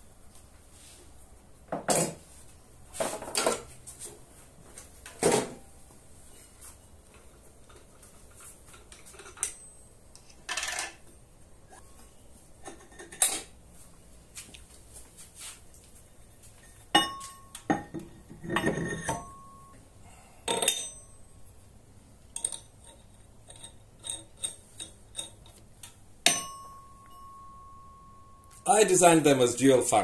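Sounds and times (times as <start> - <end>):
metal clinks and knocks: 7.1 - 11.1, 16.6 - 19.8, 20.5 - 21.3, 22.3 - 25.6, 26.2 - 28.7.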